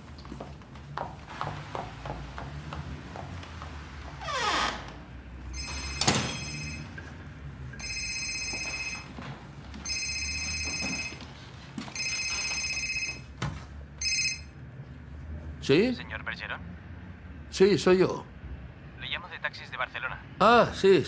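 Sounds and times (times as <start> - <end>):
telephone ringing electronic trill: 5.5 - 7.0, 7.8 - 9.1.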